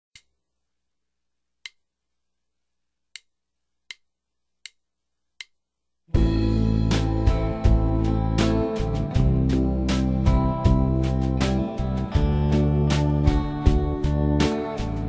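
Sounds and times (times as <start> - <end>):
loud music: 6.2 - 15.0.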